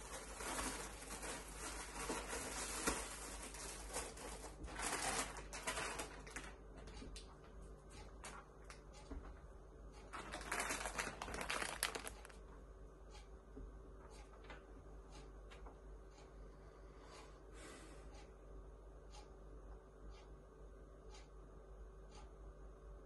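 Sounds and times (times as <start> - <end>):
plastic packet crinkling: 0.0 - 6.6, 10.1 - 12.4.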